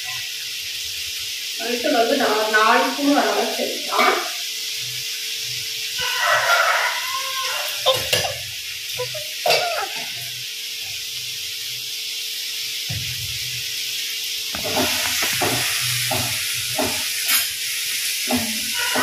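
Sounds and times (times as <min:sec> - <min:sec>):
spices sizzling in a pan: 0:00.0 - 0:19.0
spatula scraping pan: 0:18.2 - 0:19.0.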